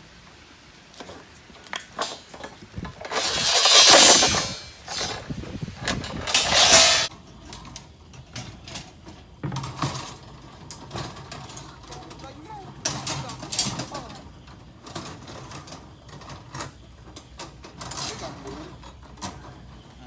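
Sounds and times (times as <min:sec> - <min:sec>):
metal bars knocking together: 0:01.7 - 0:05.2, 0:05.8 - 0:07.1
harsh metal scraping: 0:02.0 - 0:07.1.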